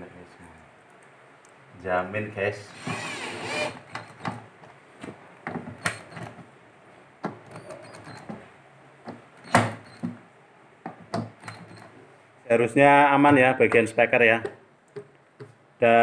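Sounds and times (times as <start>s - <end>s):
cordless drill whirring: 2.8s - 4.1s
screws clicking and knocking: 2.8s - 4.3s.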